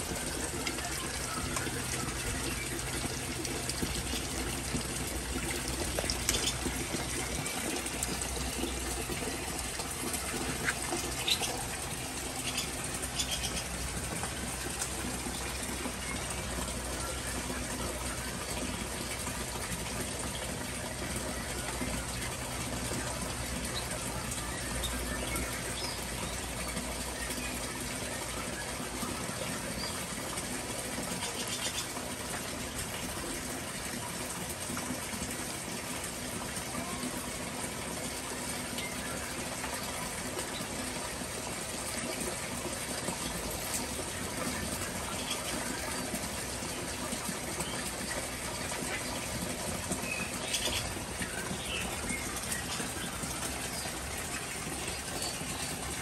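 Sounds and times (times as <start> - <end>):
running water: 0.0 - 56.0
small birds chirping: 10.1 - 13.8.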